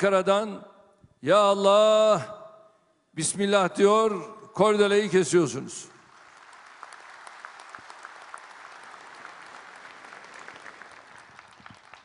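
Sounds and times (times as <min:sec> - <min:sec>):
crowd applauding: 0:06.0 - 0:12.0.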